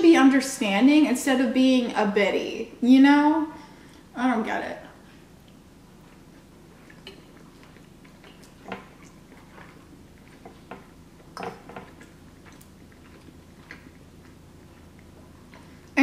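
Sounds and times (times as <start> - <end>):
quiet chewing: 5.0 - 16.0.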